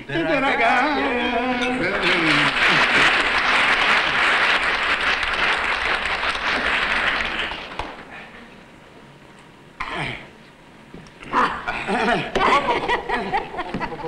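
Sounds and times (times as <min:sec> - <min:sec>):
audience applauding: 0:01.8 - 0:08.1.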